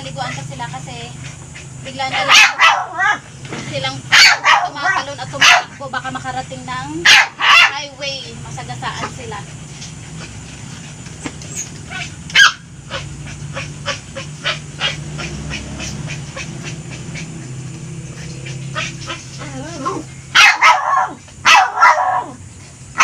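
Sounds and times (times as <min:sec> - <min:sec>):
dog yipping: 0:01.3 - 0:03.3, 0:04.1 - 0:05.8, 0:07.0 - 0:07.9, 0:11.4 - 0:17.5, 0:18.1 - 0:22.4
dog barking: 0:02.0 - 0:03.2, 0:04.0 - 0:05.9, 0:07.0 - 0:07.9, 0:11.9 - 0:17.3, 0:18.2 - 0:22.4
dog whining: 0:11.5 - 0:21.1.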